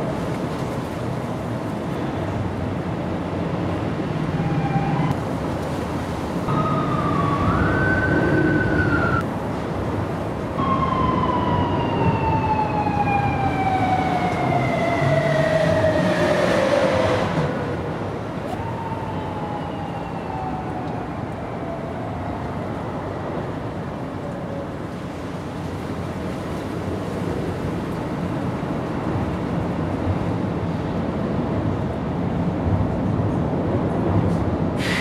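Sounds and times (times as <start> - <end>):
traffic noise: 0.0 - 35.0
siren wailing: 4.3 - 5.2, 6.5 - 9.2, 10.6 - 17.8, 18.5 - 22.9.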